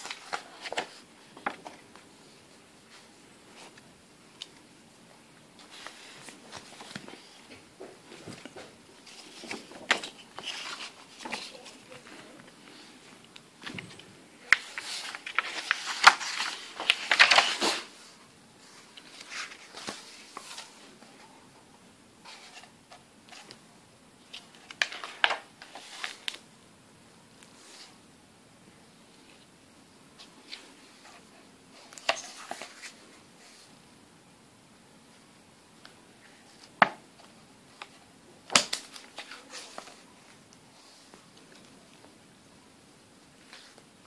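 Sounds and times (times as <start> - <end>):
book pages rustling: 0.0 - 2.1, 5.6 - 21.2, 22.2 - 23.6, 24.2 - 26.4, 30.2 - 33.7, 35.8 - 42.1, 43.4 - 44.0.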